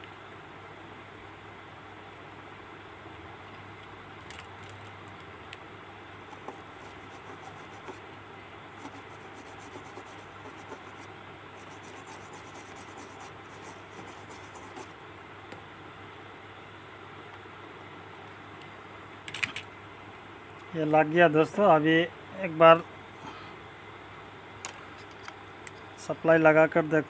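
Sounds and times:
low mains hum: 0.0s - 27.0s
hand tool scratching circuit board: 6.3s - 8.0s, 8.8s - 14.9s.

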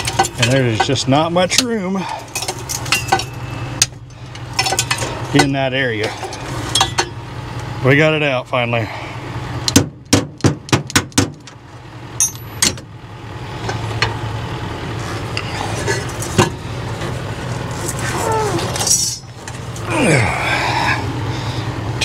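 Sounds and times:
metal clinking and clanking: 0.0s - 7.2s, 12.2s - 12.9s, 17.9s - 19.7s.

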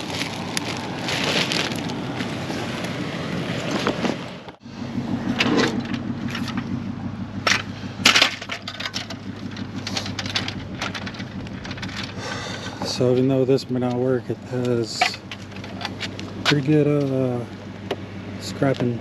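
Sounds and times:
plastic bags rustling: 0.0s - 2.8s
steady low hum: 0.0s - 19.0s
metal hand truck clattering: 7.4s - 17.3s.

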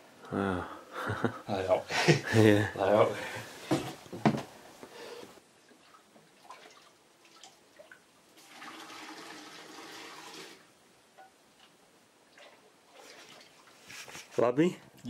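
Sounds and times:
beer splashing into keg: 8.4s - 10.6s.

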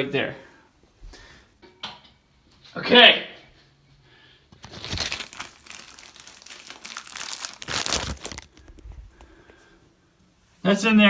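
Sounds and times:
plastic rustling and crinkling: 4.5s - 9.7s.

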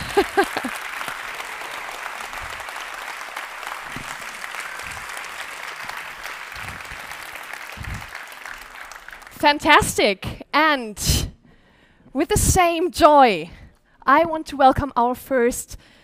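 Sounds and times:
audience applause: 0.0s - 9.4s.

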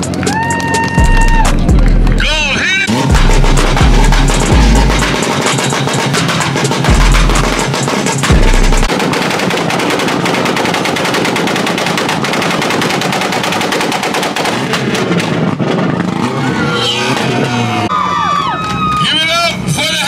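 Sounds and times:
crowd whooping and cheering: 0.0s - 3.0s, 16.2s - 19.7s
exhaust pops and bangs: 0.0s - 16.4s
car engine revving: 0.0s - 17.9s.

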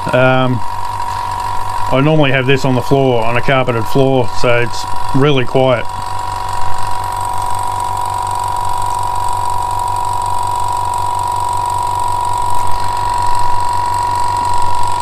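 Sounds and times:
air compressor humming and whining: 0.0s - 15.0s.

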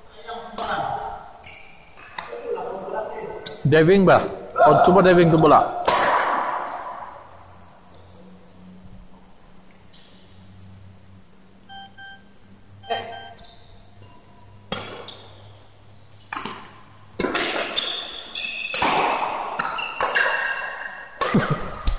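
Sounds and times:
shuttlecock hits: 5.3s - 7.1s, 14.7s - 15.3s, 16.3s - 21.9s
shoes squeaking on court: 14.7s - 17.0s, 17.6s - 18.8s, 19.6s - 21.0s.

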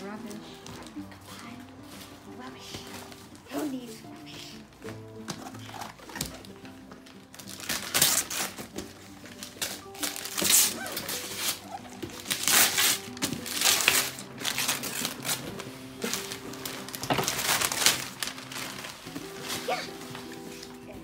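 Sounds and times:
background music: 0.0s - 21.0s
wrapping paper ripping: 4.9s - 20.9s.

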